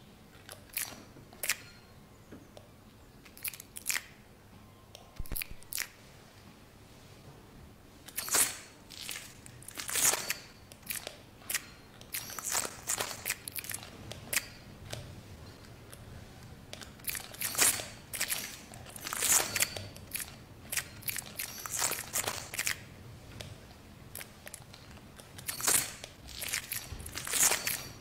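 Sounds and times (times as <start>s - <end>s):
crackling and crunching: 8.1s - 14.6s, 16.8s - 22.9s, 24.1s - 28.0s.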